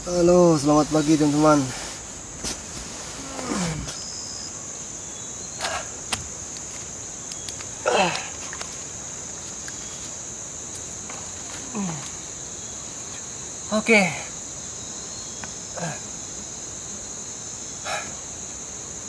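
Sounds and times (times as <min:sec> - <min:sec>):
insects droning: 0:00.0 - 0:19.0
man's short falling voice sounds: 0:03.2 - 0:04.0.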